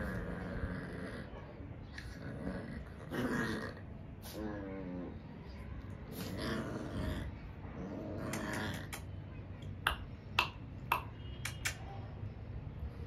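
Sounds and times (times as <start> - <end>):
puppies grunting and growling: 0.0 - 5.3, 6.1 - 9.1
sharp clicks: 10.4 - 11.9.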